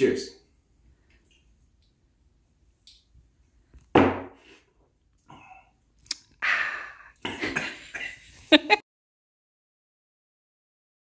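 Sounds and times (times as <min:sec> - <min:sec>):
glass set down on wood: 0:04.0 - 0:04.4
person exhaling: 0:06.4 - 0:07.3.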